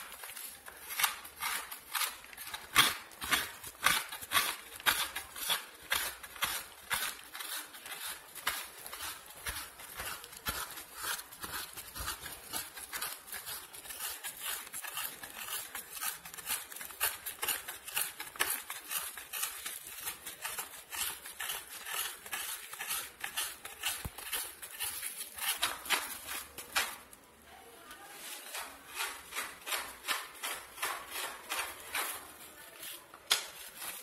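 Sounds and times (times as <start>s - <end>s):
coconut scraping on blade: 0.0s - 27.1s, 28.2s - 34.0s.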